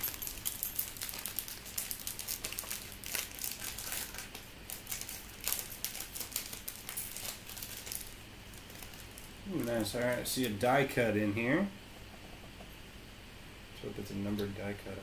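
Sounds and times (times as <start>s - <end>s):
foil wrapper crinkling: 0.0s - 10.6s.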